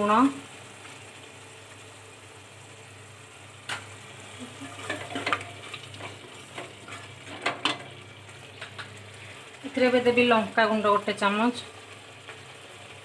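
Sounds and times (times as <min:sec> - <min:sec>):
low sizzle of frying: 0:00.0 - 0:13.0
spatula scraping a pot: 0:04.5 - 0:07.9.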